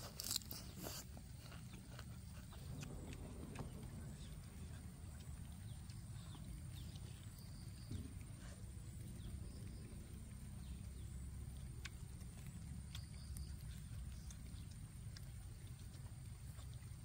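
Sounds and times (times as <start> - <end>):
low background rumble: 0.0 - 17.0
soft chewing and mouth smacks: 0.0 - 17.0.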